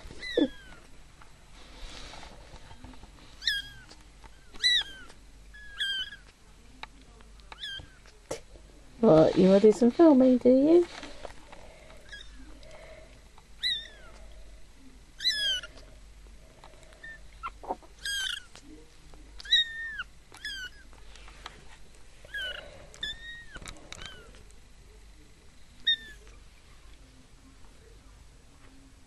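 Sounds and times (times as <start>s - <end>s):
kittens mewing: 0.0s - 0.9s, 3.4s - 6.4s, 13.6s - 14.3s, 15.2s - 16.0s, 16.6s - 18.7s, 19.4s - 21.0s, 22.2s - 24.5s, 25.8s - 26.4s.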